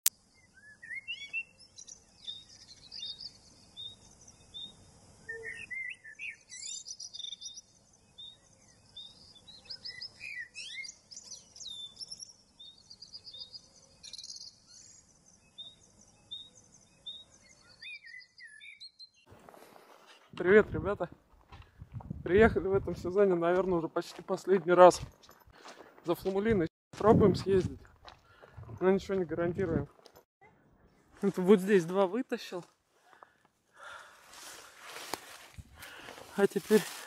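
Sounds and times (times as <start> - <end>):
small birds chirping and singing: 0.2 - 19.3.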